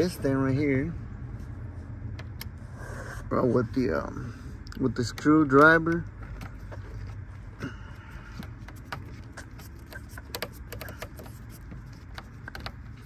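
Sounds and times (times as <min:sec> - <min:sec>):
steady low hum: 0:00.0 - 0:13.0
screwdriver clicking on plastic: 0:09.8 - 0:12.8.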